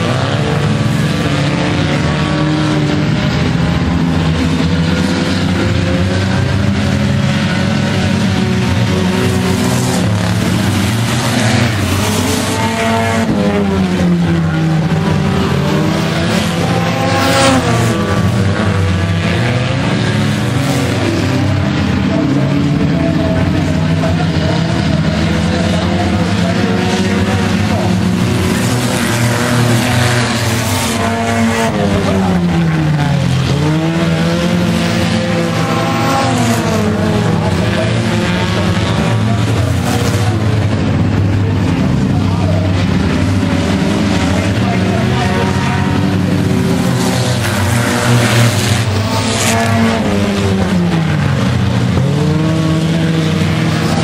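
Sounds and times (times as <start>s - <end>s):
race car engines revving: 0.0s - 54.0s
race car passing close: 0.0s - 54.0s.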